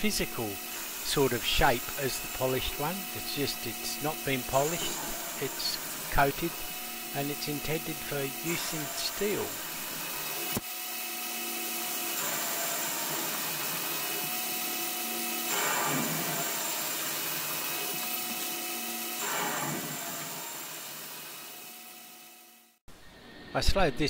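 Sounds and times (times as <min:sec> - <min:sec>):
lathe spindle whine: 0:00.0 - 0:22.8
metal cutting noise: 0:00.0 - 0:22.8.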